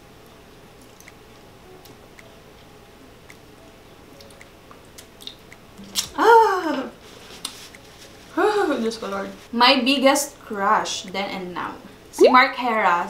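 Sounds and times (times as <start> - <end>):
wet sucking and lip smacking: 4.2 - 6.1, 7.2 - 8.3.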